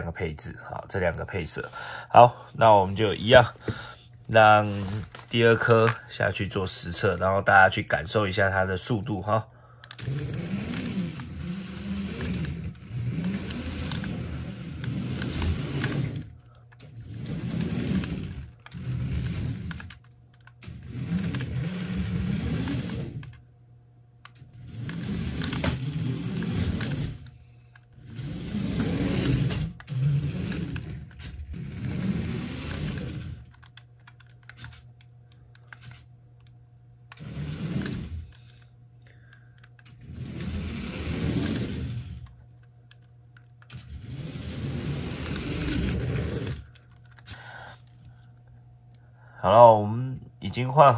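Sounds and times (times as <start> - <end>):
plastic gears clattering: 4.3 - 6.0, 9.8 - 23.4, 24.2 - 36.5, 37.1 - 47.4
toy car electric motor whirring: 4.4 - 5.9, 9.8 - 23.4, 24.2 - 34.9, 37.1 - 38.7, 39.6 - 47.4.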